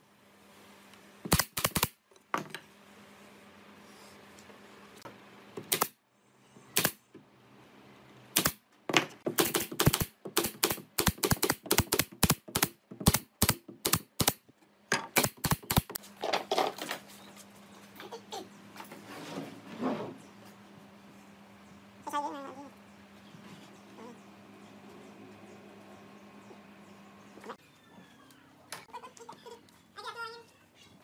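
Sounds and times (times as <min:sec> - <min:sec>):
nail gun firing: 0:01.3 - 0:02.0, 0:05.6 - 0:06.0, 0:06.8 - 0:07.0, 0:08.3 - 0:08.6, 0:09.3 - 0:14.4, 0:15.1 - 0:16.0.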